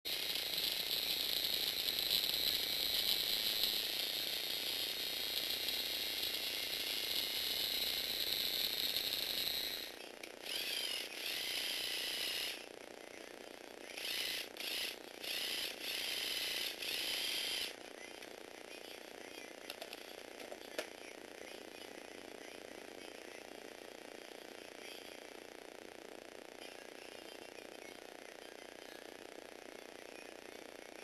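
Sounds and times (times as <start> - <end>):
small electric motor whining: 0.1 - 31.0.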